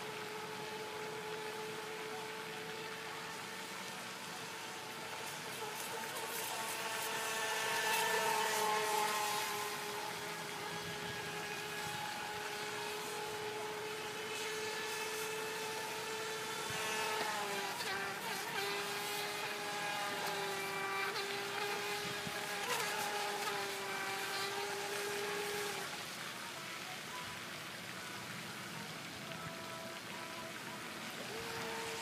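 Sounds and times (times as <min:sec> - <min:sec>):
rc boat motor whine: 0:00.0 - 0:32.0.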